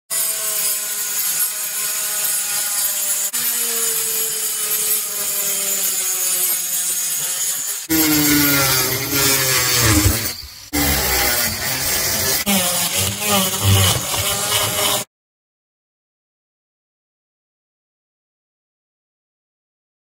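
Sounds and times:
angle grinder cutting cement board: 0.1s - 15.1s.

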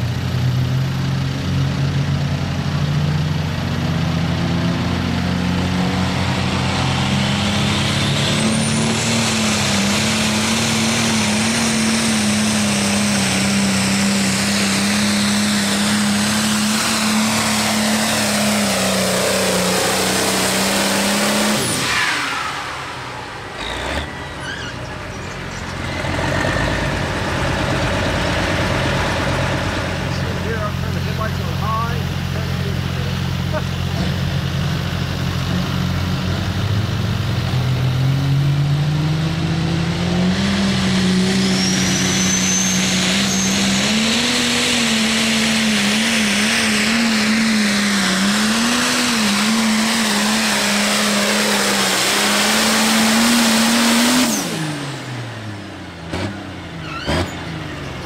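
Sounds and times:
diesel tractor engine at full throttle: 0.0s - 58.0s
high turbo whistle: 41.1s - 44.4s.

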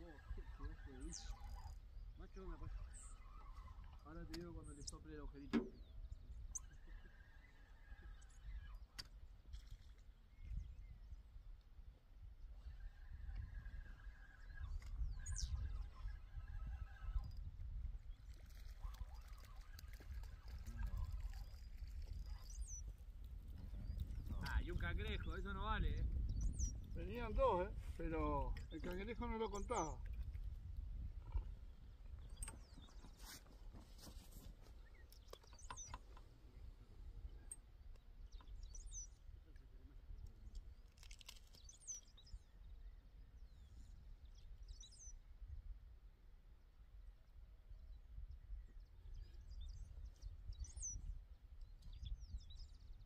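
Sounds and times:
high curling bird chirps: 0.0s - 5.0s, 12.4s - 27.8s, 34.2s - 39.4s
wind on microphone: 0.0s - 40.9s, 46.9s - 53.0s.

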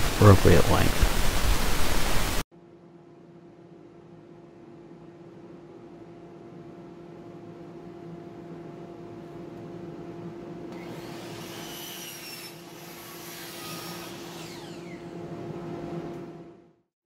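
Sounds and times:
miter saw motor hum: 9.0s - 16.5s
saw blade ripping through wood: 10.8s - 14.9s.

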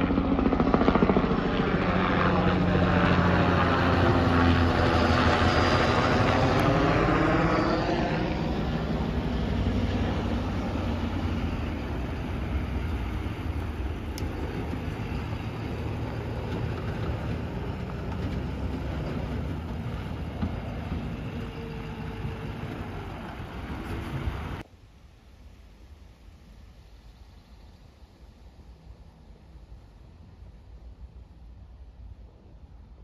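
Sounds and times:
truck engine running: 8.3s - 24.6s.

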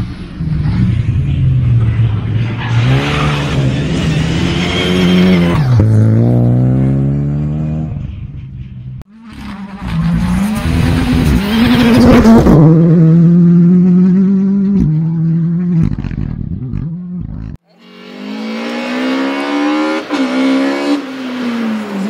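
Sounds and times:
rally car engine revving: 9.2s - 22.0s.

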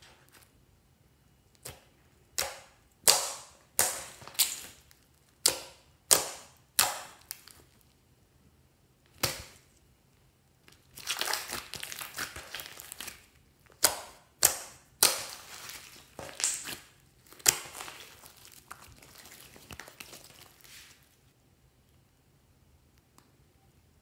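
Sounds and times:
slime squelching: 1.5s - 8.0s, 10.6s - 21.3s
sharp slime pops: 1.6s - 7.6s, 9.1s - 9.6s, 13.8s - 18.9s.

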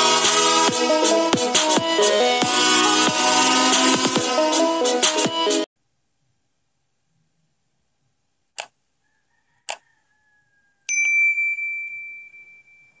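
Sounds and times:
mouse clicks: 8.6s - 8.8s
notification bell ding: 10.9s - 13.0s.

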